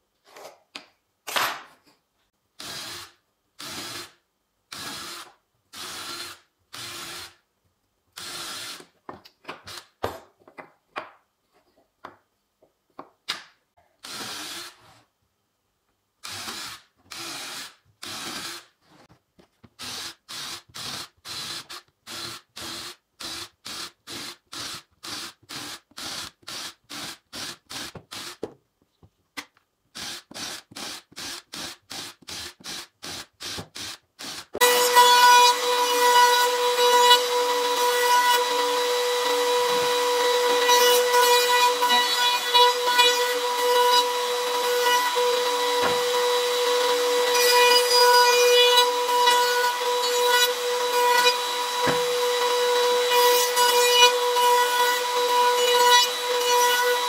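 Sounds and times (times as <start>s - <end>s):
cordless drill boring into wood: 8.2s - 8.8s, 14.0s - 14.8s, 16.2s - 18.7s, 19.8s - 28.4s, 30.0s - 47.3s.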